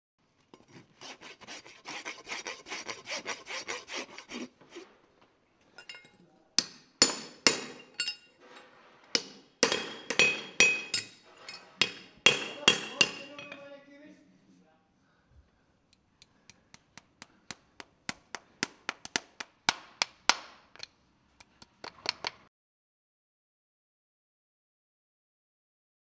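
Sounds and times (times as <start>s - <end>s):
file scraping metal: 0.5s - 5.0s
hammer striking horseshoe on anvil: 5.8s - 8.3s, 9.1s - 13.6s.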